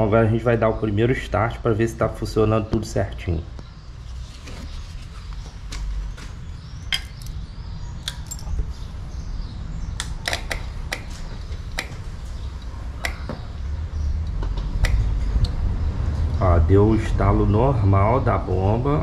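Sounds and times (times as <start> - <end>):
steady low rumble: 5.0 - 19.0
fuel pump clicks: 10.0 - 12.0.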